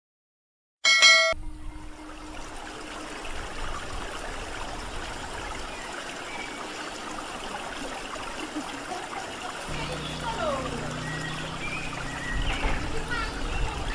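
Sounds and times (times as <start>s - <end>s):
running water: 1.4s - 13.9s.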